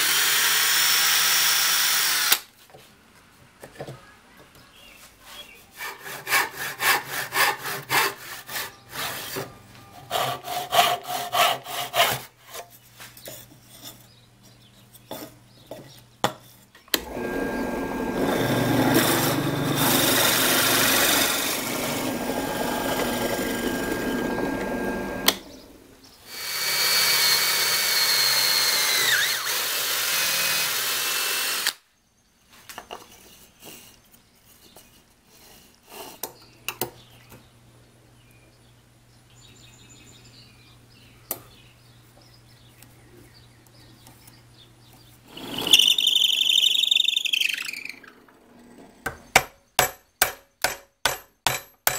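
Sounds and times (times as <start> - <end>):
drill press whining: 17.0 - 29.9.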